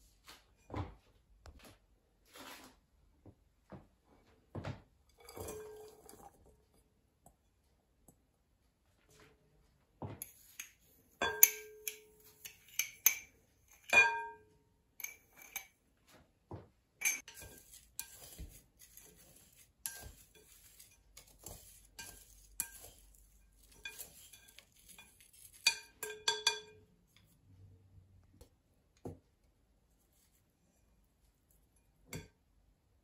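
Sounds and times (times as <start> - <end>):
utensils scraping glass bowl: 10.2 - 14.0, 17.0 - 27.3.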